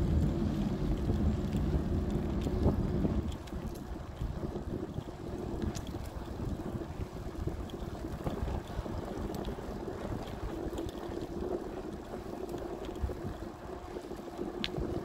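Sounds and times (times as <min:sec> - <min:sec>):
steady hum: 0:00.0 - 0:03.3
bicycle rolling on concrete: 0:00.0 - 0:15.0
wind buffeting microphone: 0:00.0 - 0:15.0
faint high ticks: 0:00.1 - 0:15.0.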